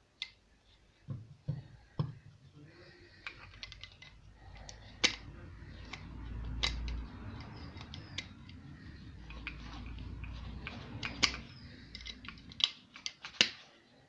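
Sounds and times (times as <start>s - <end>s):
sharp snaps: 4.5s - 13.7s.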